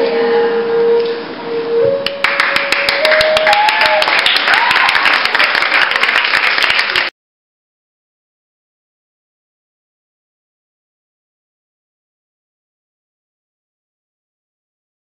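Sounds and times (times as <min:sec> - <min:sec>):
held sung note: 0:00.0 - 0:04.3
audience clapping: 0:02.0 - 0:07.1.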